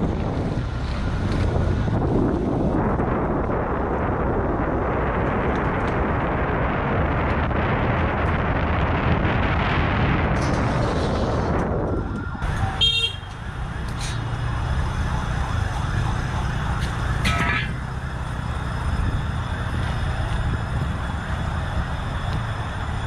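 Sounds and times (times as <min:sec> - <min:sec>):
rushing noise: 0:01.6 - 0:12.8
vehicle horn toots: 0:12.8 - 0:13.3.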